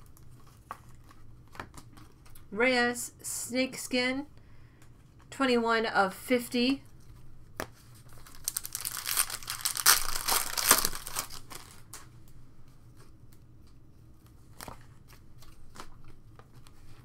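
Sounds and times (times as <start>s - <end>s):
foil wrapper tearing and crinkling: 8.1s - 12.0s.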